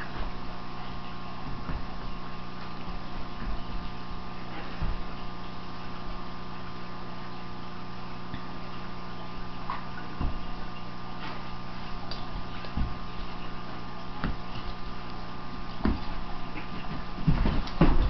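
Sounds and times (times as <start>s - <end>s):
electrical hum: 0.0s - 18.0s
dogs play-wrestling on carpet: 11.1s - 18.0s.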